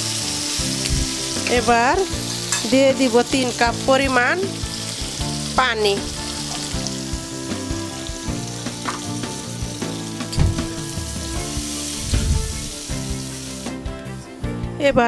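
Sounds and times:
vegetables sizzling in a pan: 0.0s - 14.0s
low splashy thumps: 10.3s - 12.7s.

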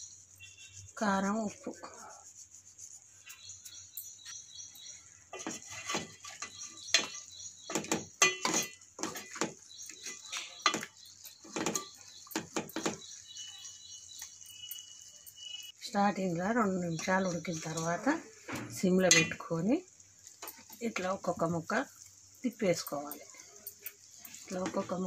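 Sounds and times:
faint steady hiss: 0.0s - 25.0s
metal spoon scraping a pan: 3.2s - 15.5s, 17.0s - 19.6s, 23.0s - 25.0s.

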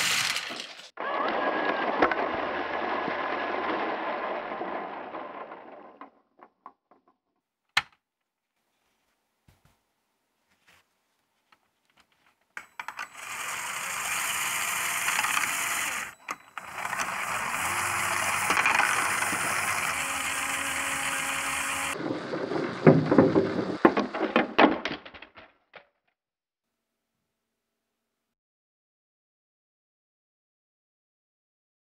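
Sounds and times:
plastic parts clattering: 0.0s - 0.9s, 14.7s - 25.9s
electric motors whirring: 0.0s - 5.5s, 12.7s - 23.9s.

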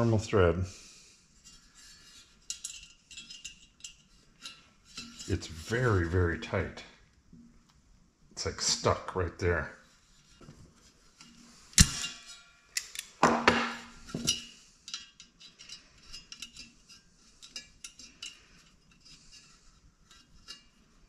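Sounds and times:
tools clanking on metal fan: 1.5s - 6.3s, 11.2s - 20.9s.

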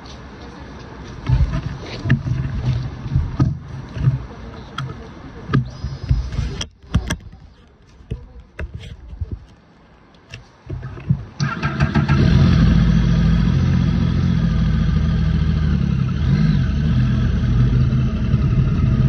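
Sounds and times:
wind rumbling on microphone: 1.2s - 9.5s.

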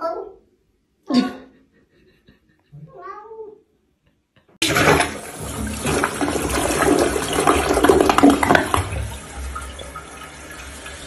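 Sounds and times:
toilet flushing: 4.6s - 11.0s.

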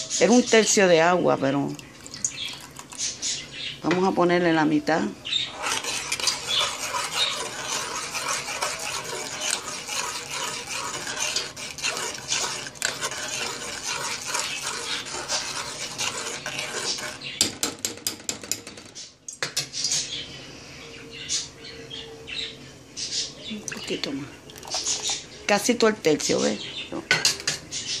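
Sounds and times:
spoon scraping metal pot: 5.4s - 17.5s, 24.6s - 25.2s.

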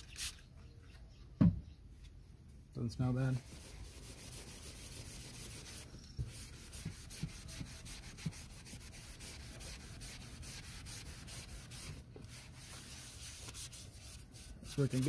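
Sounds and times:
sponge scrubbing vinyl upholstery: 3.4s - 15.0s.

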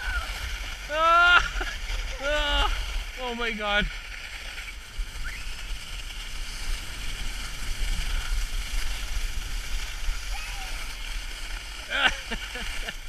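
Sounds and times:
skis sliding over snow: 0.0s - 13.0s
wind buffeting microphone: 4.6s - 13.0s.

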